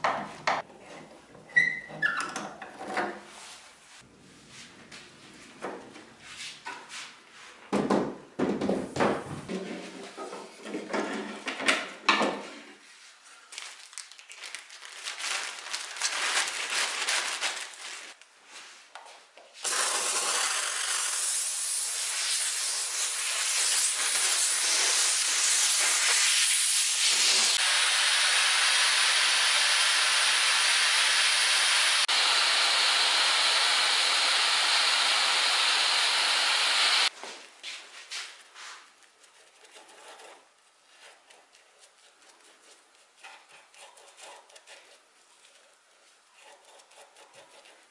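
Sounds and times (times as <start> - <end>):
loud steady hiss: 19.6 - 37.1
hand scraper scraping wood: 39.2 - 45.7, 46.3 - 47.9.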